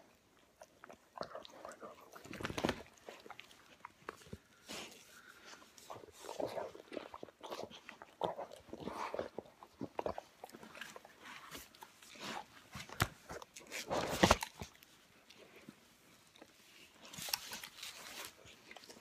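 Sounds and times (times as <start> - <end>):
dogs mouthing and snapping jaws: 1.2 - 4.5.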